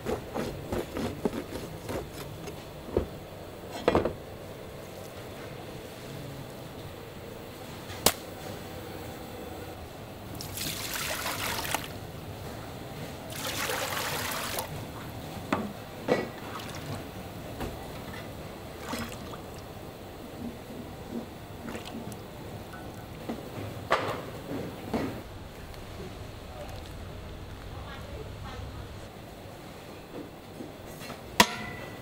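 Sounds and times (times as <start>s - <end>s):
liquid flowing: 10.3s - 12.0s, 13.3s - 14.8s.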